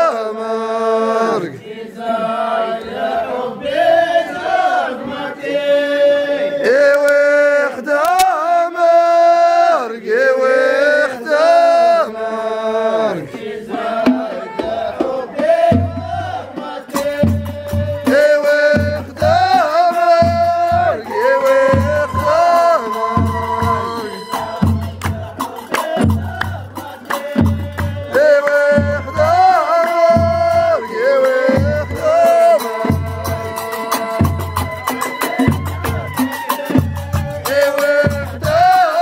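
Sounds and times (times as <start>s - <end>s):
men chanting a folk song: 0.0s - 39.0s
frame drums: 13.2s - 39.0s
deep drum beats: 13.4s - 39.0s.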